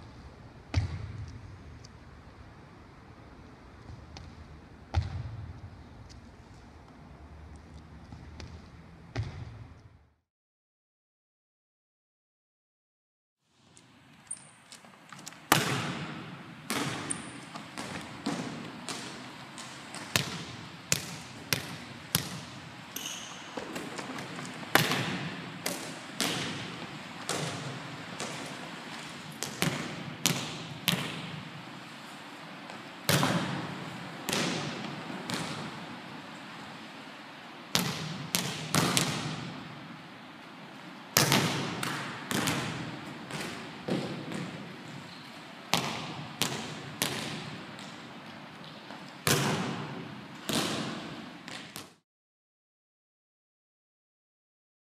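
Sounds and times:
hand slapping volleyball: 23.0 - 31.4, 33.1 - 35.7, 41.2 - 44.6, 45.7 - 48.0, 48.6 - 52.0.

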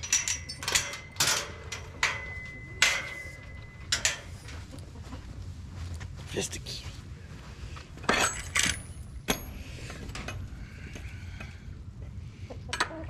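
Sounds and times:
high metallic ringing: 0.0 - 4.7, 8.0 - 9.9
metal latch and chain clinking: 0.0 - 4.7, 8.0 - 11.1.

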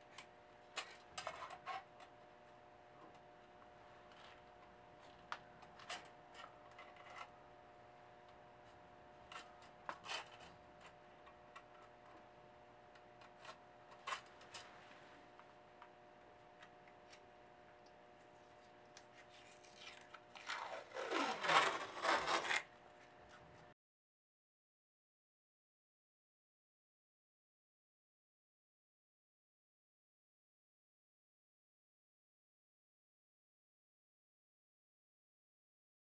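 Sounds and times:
faint steady hum: 0.0 - 23.8
tape ripping off roll: 19.4 - 22.7.

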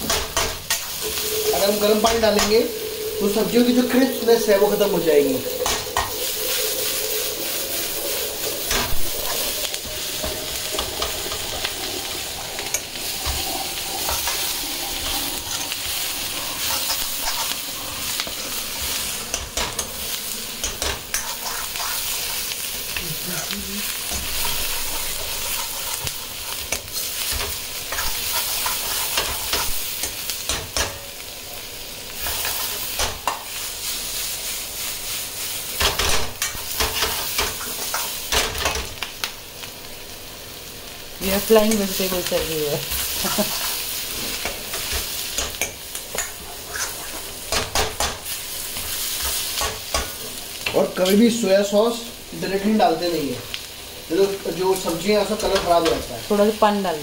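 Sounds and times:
vegetables sizzling in a wok: 0.0 - 57.0
metal spatula scraping a pan: 12.6 - 22.7, 24.1 - 31.0, 42.9 - 50.2.

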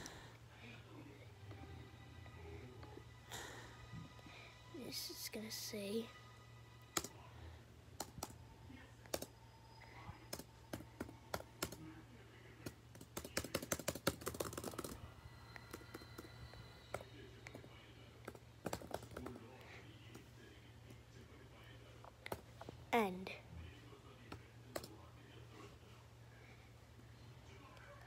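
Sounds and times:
laptop keys clicking: 10.3 - 11.8, 13.0 - 15.0, 18.3 - 19.3.

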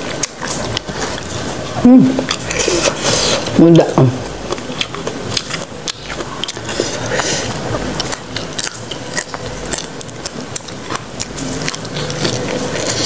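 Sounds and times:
chewing crunchy greens: 0.0 - 13.0.

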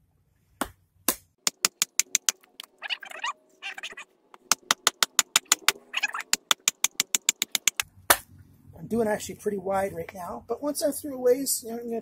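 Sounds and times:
wooden baton tapping knife spine: 4.4 - 7.8.

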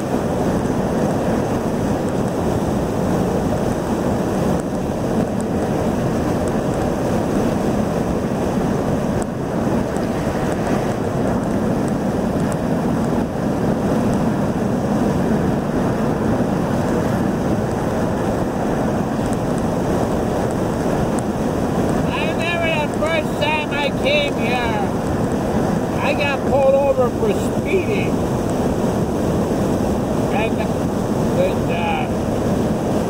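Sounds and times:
road and wind noise in car: 0.0 - 33.0.

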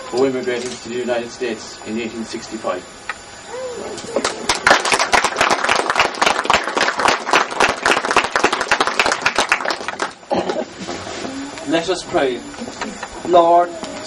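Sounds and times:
crowd applauding: 4.2 - 10.3.

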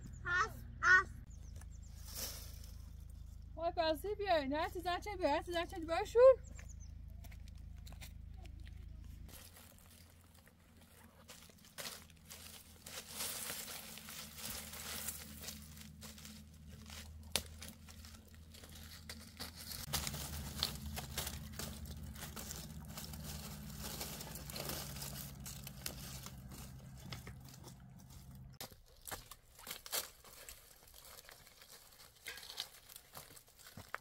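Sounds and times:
steady low hum: 0.0 - 28.6
crinkling and rustling: 7.0 - 34.0.

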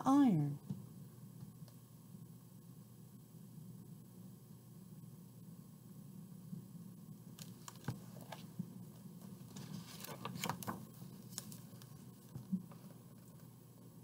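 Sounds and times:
book page turning: 7.4 - 8.5, 9.2 - 13.5.

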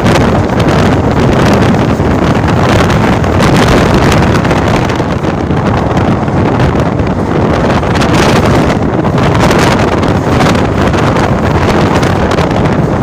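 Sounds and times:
train rumbling on track: 0.0 - 13.0
wind buffeting microphone: 0.0 - 13.0.

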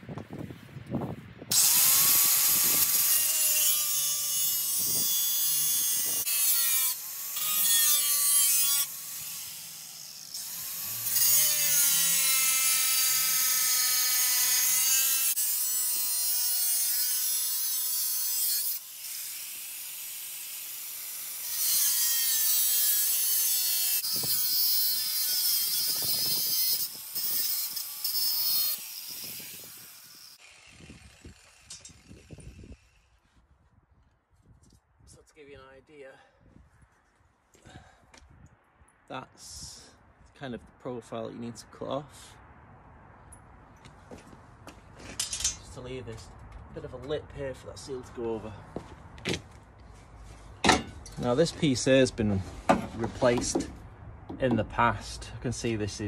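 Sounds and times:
angle grinder cutting metal: 1.5 - 33.2.

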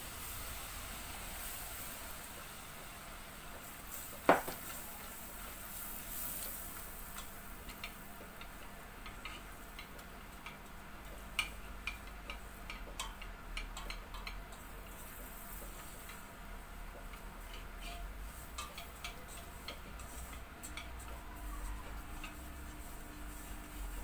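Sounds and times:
faint sizzle: 0.0 - 24.0
whisk scraping metal pot: 17.2 - 24.0.

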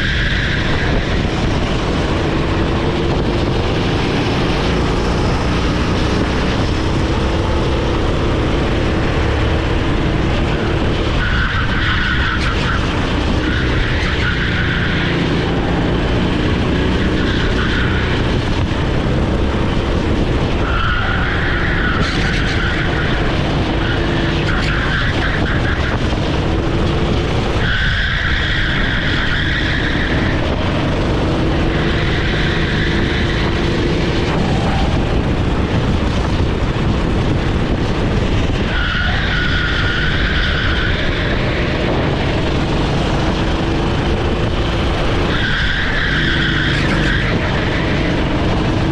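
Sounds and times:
kart engine running hard: 0.0 - 48.9
tyres squealing: 20.5 - 26.7, 27.5 - 35.2, 38.6 - 42.4, 45.2 - 48.9.

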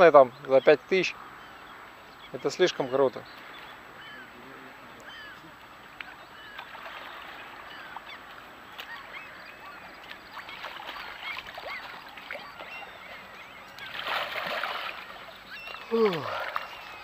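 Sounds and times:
birds chirping and calling: 0.0 - 17.0
paddle splashes: 5.0 - 17.0.

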